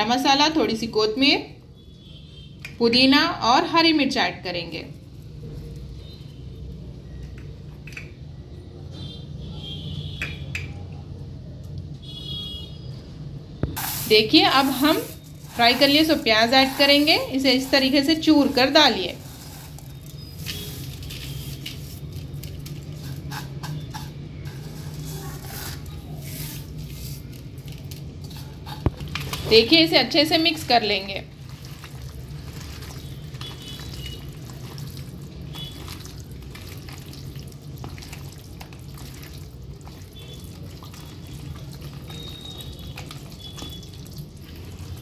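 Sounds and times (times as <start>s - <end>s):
fried onions crackling rustle: 13.8s - 45.0s.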